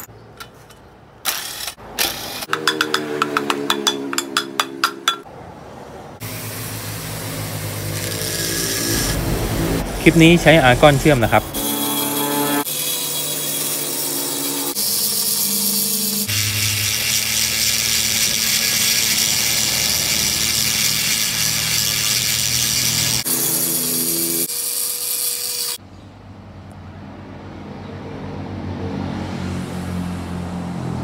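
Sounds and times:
die grinder whine cutting metal: 7.5s - 25.8s.

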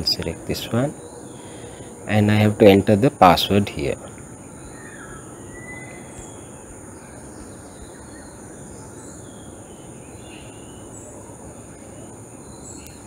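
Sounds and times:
steady hiss: 0.0s - 13.0s.

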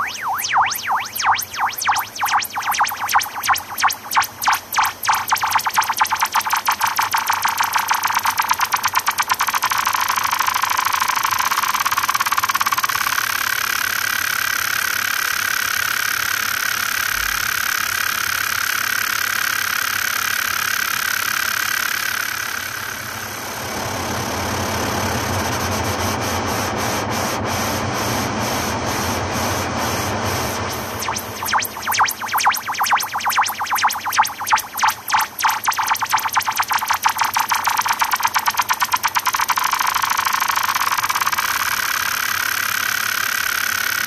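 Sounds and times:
ambient electronic music: 0.0s - 12.9s, 30.7s - 42.0s
rising whistle-like tone: 0.0s - 13.4s, 30.7s - 42.5s.

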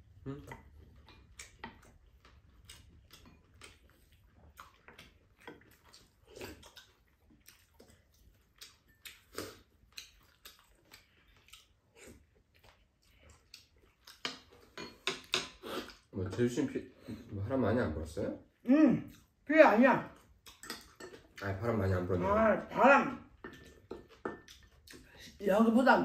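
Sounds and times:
chewing and lip smacks: 0.1s - 14.8s, 20.1s - 21.5s, 23.5s - 25.4s
wooden spoons clicking on plates: 14.1s - 15.6s, 20.5s - 21.4s.

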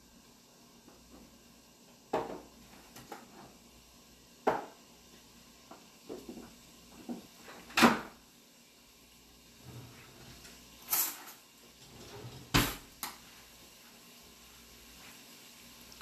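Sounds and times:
kitchen items knocking and clunking: 2.1s - 3.5s, 4.4s - 4.8s.

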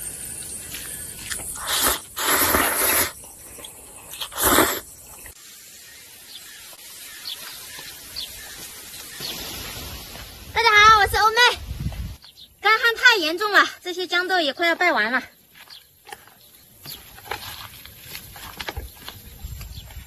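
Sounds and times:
loud slurping of noodles: 1.3s - 5.3s.

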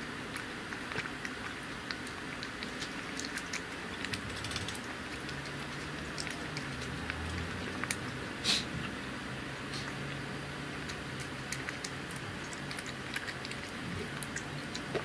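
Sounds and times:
cat chewing and licking: 0.0s - 15.0s.

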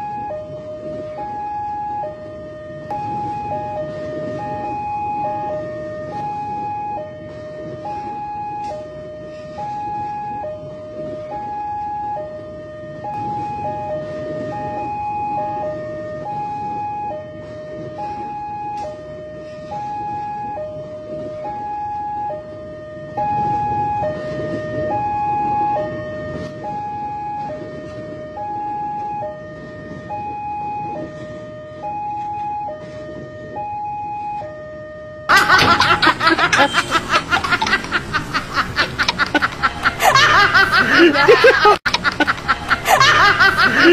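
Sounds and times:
two-tone crossing alarm: 0.0s - 43.9s
electric train rumbling past: 35.3s - 43.9s
loud laughter: 35.3s - 43.9s.

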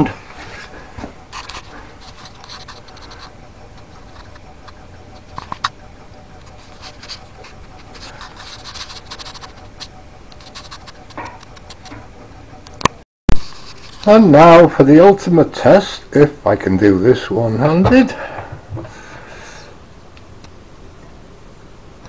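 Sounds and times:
stove fan humming: 0.0s - 22.0s
small clicks and scratches: 1.3s - 12.1s.

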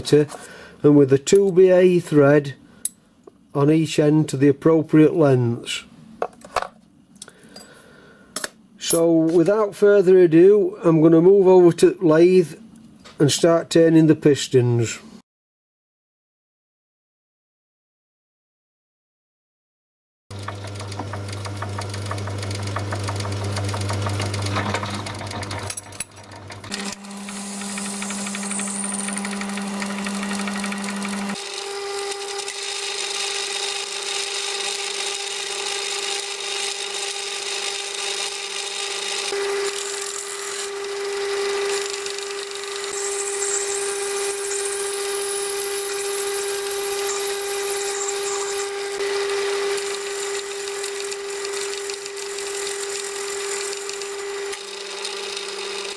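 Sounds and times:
lathe motor hum: 20.3s - 44.5s, 46.7s - 55.9s.

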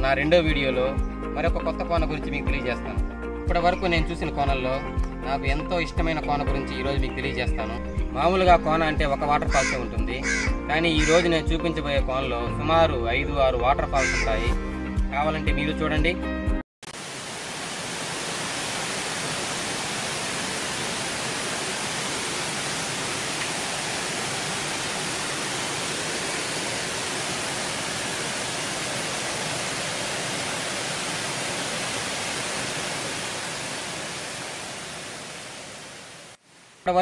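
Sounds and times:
waterfall rushing: 16.9s - 36.8s.

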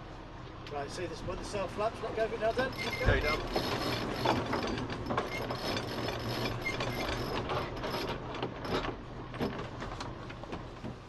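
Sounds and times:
winch clicking rapidly: 2.5s - 8.8s.

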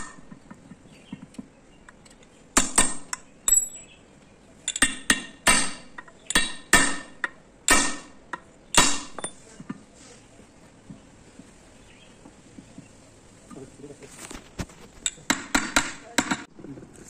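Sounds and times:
hammer striking steel punch: 4.7s - 9.4s.

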